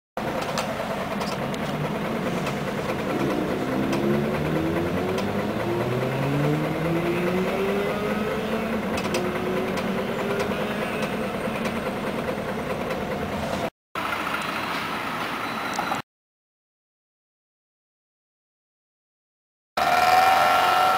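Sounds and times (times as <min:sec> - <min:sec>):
bus engine pulling away: 0:00.2 - 0:16.0.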